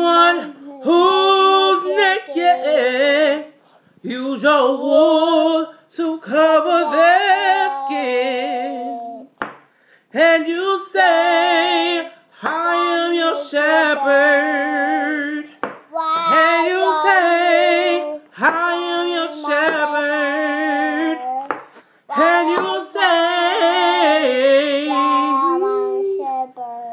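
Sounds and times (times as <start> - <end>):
person singing with vibrato: 0.0 - 26.9
singer's breaths: 9.6 - 10.2, 21.6 - 22.1.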